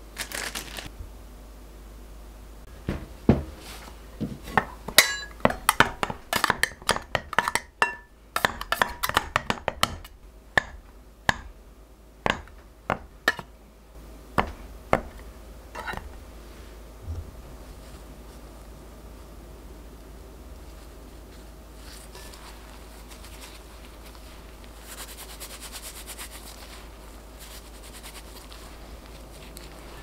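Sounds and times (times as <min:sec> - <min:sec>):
metal blades clinking against glass: 0:05.0 - 0:05.4.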